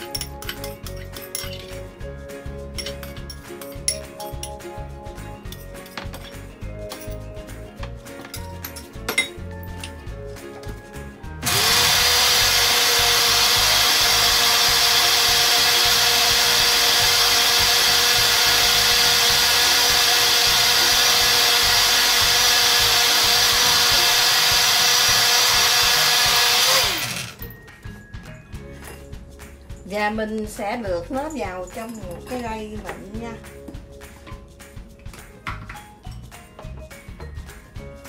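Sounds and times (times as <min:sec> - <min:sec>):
soft background music: 0:00.0 - 0:18.5, 0:26.3 - 0:38.0
blender running: 0:11.4 - 0:27.4.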